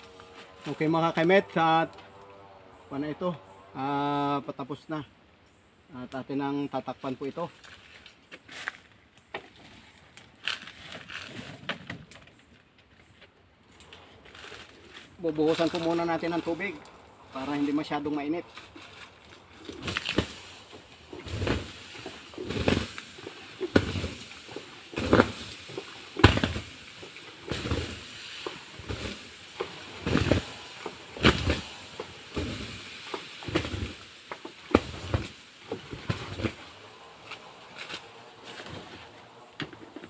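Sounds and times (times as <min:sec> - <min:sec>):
sizzling on hot charcoal: 0:14.2 - 0:38.8
water splashing onto coals: 0:18.6 - 0:36.7.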